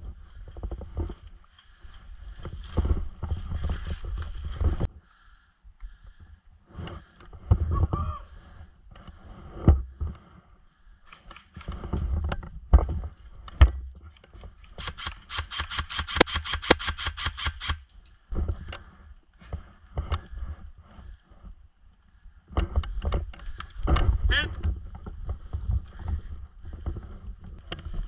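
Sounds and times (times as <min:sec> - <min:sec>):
airsoft rifle automatic fire: 0:14.8 - 0:17.8.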